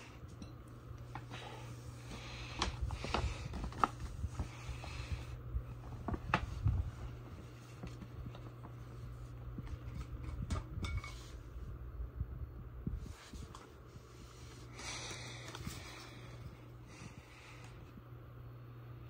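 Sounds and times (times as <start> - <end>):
steady low hum: 0.0 - 19.0
paper bag and tissue rustling: 1.9 - 10.0.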